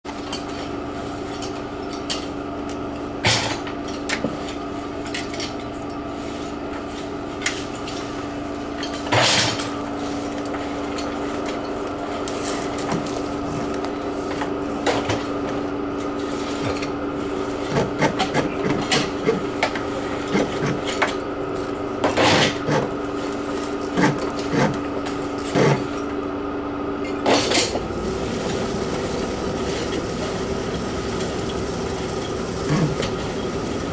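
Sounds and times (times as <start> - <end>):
machine hum: 27.6 - 33.9.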